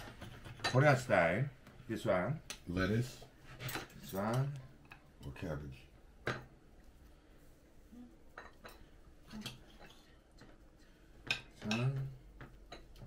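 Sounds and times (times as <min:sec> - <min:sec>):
cutlery clinking against plates: 0:11.2 - 0:13.0.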